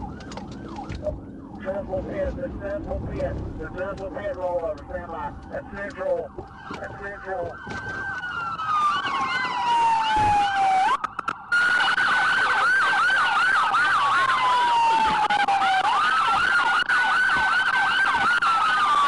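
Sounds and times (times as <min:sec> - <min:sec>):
police siren wailing: 0:00.0 - 0:19.0
police siren quick sweeps: 0:07.6 - 0:19.0.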